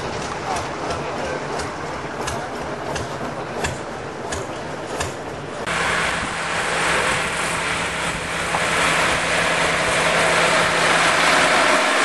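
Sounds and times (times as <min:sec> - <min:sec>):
train engine hum: 0:00.0 - 0:12.0
loud rushing noise: 0:05.6 - 0:12.0.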